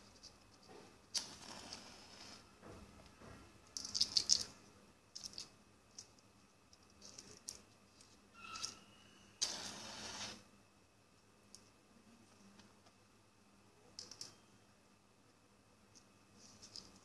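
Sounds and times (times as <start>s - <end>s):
match striking and flaring: 9.4s - 10.4s.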